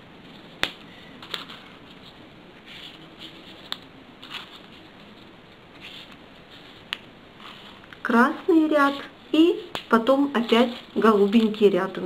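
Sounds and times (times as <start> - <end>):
paper rustling: 0.2 - 8.0, 8.9 - 12.0
sharp paper clicks: 9.6 - 11.8.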